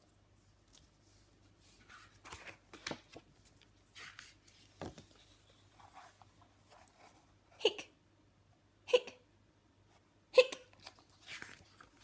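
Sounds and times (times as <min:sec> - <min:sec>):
paper pages rustling: 0:00.0 - 0:07.2, 0:10.8 - 0:12.0.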